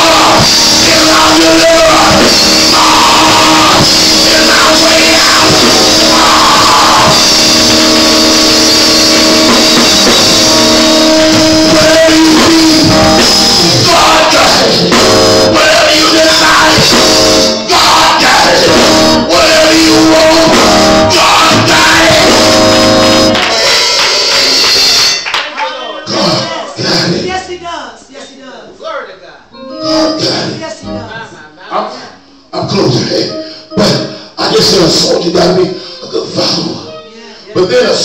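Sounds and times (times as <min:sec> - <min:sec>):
voices singing: 0:00.0 - 0:24.7, 0:29.4 - 0:38.0
drums: 0:00.0 - 0:25.3
live church praise music: 0:00.0 - 0:38.0.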